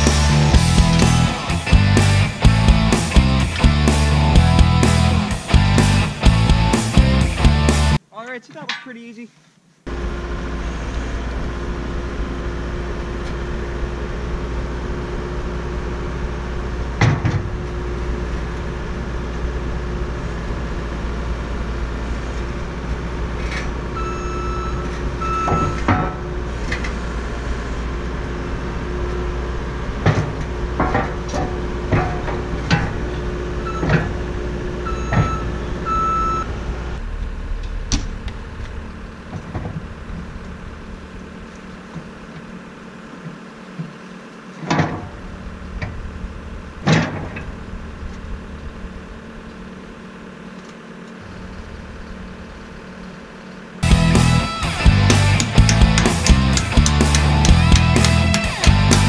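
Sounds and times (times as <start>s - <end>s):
loader engine humming: 0.0s - 9.1s, 9.8s - 59.0s
metal clanks and knocks: 25.4s - 26.9s, 30.0s - 34.2s, 37.2s - 40.4s, 46.8s - 47.5s, 55.0s - 59.0s.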